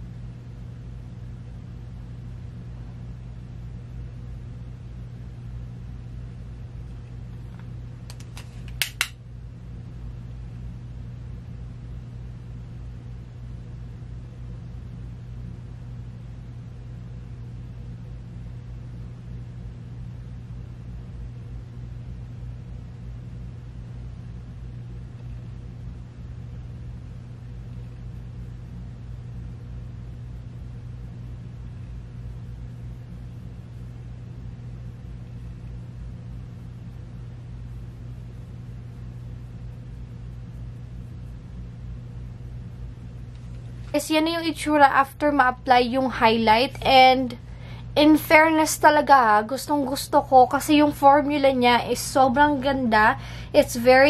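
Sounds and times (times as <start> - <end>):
low room hum: 0.0 - 54.0.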